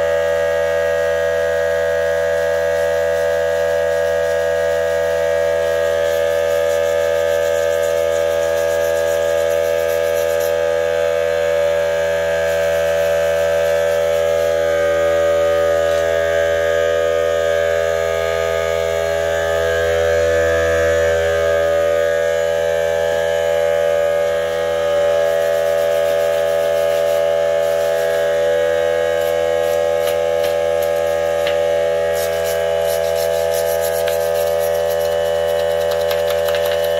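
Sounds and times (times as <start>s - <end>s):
steady multi-pitch hum: 0.0s - 36.9s
scraper scraping paint: 2.4s - 10.7s, 12.4s - 14.6s, 25.2s - 28.5s, 29.1s - 36.9s.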